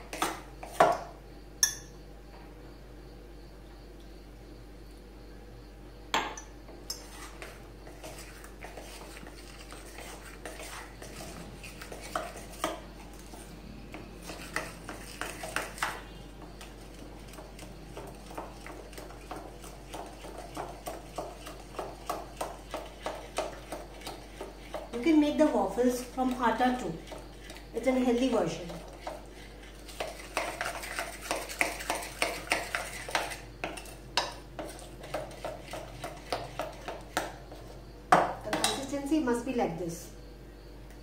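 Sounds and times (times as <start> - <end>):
spoon stirring batter in bowl: 0.0 - 2.0, 6.2 - 39.1.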